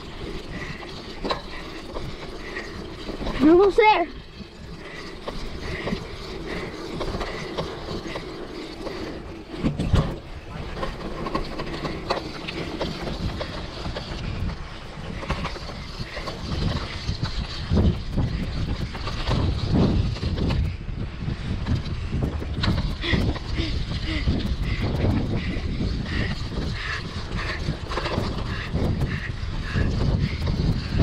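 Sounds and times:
bike tyre and drivetrain noise: 0:00.0 - 0:31.0
wind buffeting microphone: 0:00.0 - 0:31.0
bike clicks and knocks: 0:00.2 - 0:03.5, 0:04.6 - 0:20.8.

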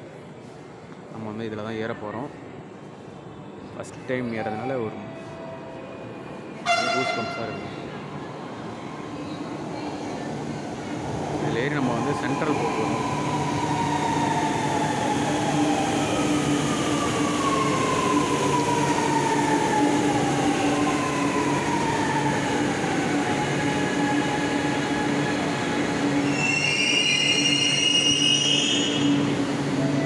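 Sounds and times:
high brake squeal: 0:26.2 - 0:29.2.

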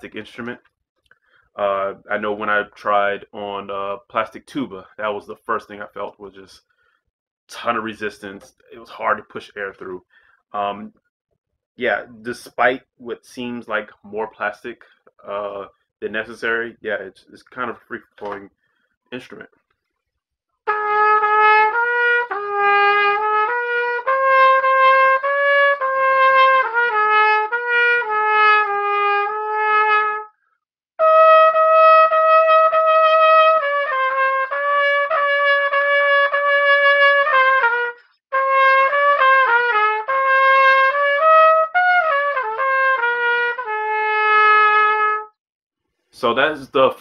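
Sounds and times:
plastic trumpet playing melodic phrases: 0:20.7 - 0:30.3, 0:31.0 - 0:45.4.

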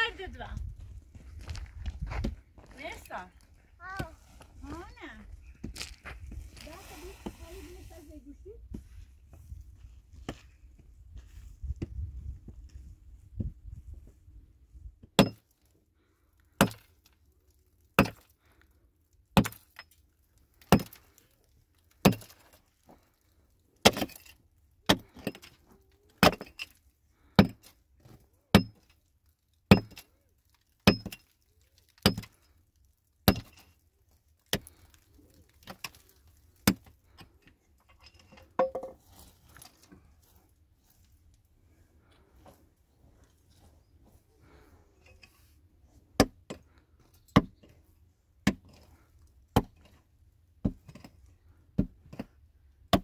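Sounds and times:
quiet knocks and scrapes: 0:37.1 - 0:48.0.

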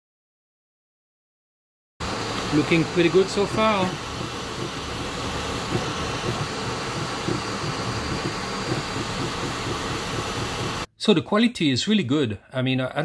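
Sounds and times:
cooling fan hiss: 0:02.0 - 0:10.9
stepper motors whirring: 0:02.0 - 0:10.9.

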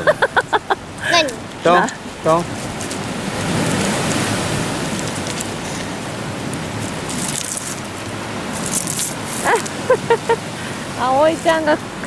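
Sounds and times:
sea surf on pebble beach: 0:00.0 - 0:12.0
child's voice: 0:01.0 - 0:01.4.

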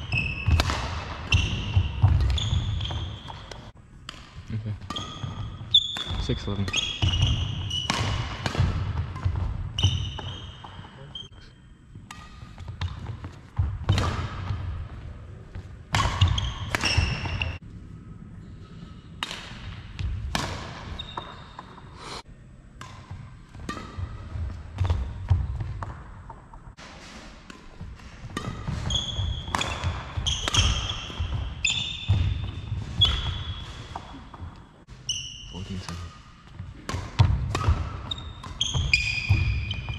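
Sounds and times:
shoe squeaks: 0:00.0 - 0:00.6, 0:01.3 - 0:03.7, 0:04.8 - 0:08.2, 0:09.7 - 0:11.7, 0:16.0 - 0:17.6, 0:20.9 - 0:22.2, 0:28.7 - 0:34.4, 0:35.0 - 0:36.3, 0:37.8 - 0:39.9
racket striking shuttlecock: 0:00.2 - 0:10.9, 0:12.0 - 0:14.9, 0:15.9 - 0:17.6, 0:19.1 - 0:21.8, 0:22.7 - 0:34.6, 0:35.9 - 0:39.9.

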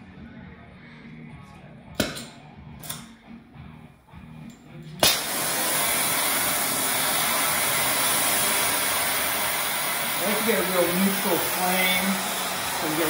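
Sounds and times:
torch ignition pop: 0:02.0 - 0:03.2, 0:05.0 - 0:13.0
torch flame hissing: 0:05.0 - 0:13.0.

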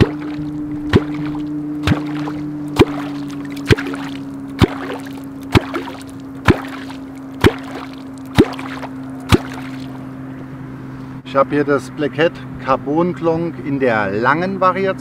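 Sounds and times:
wooden clonk plopping in water: 0:00.0 - 0:09.9
steady low hum: 0:00.0 - 0:15.0.

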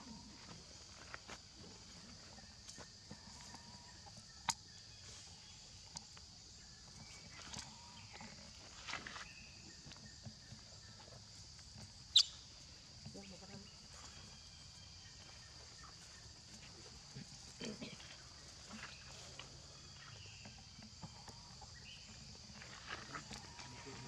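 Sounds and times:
baby monkey squeaks: 0:12.1 - 0:12.4.

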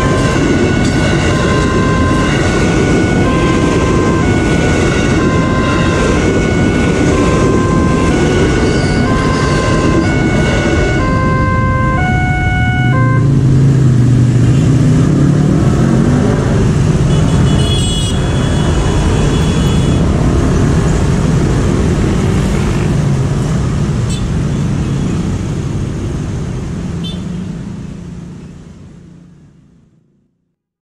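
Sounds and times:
level crossing warning alarm: 0:00.0 - 0:13.4
cars driving past: 0:00.0 - 0:29.9
motorcycles driving past: 0:05.0 - 0:23.8.

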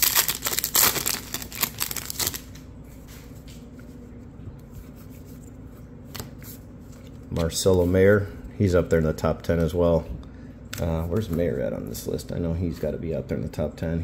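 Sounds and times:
foil wrapper crinkling and tearing: 0:00.0 - 0:02.6.

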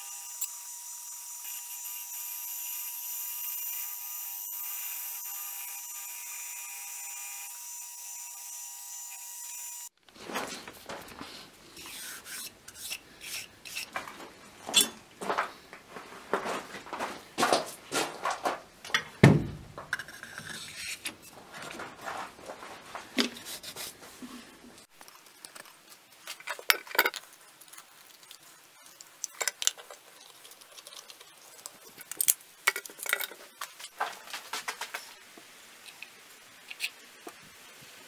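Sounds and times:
thump: 0:19.2 - 0:19.8
metal and wood pieces clinking: 0:25.4 - 0:27.3, 0:29.2 - 0:30.1, 0:31.9 - 0:34.3.

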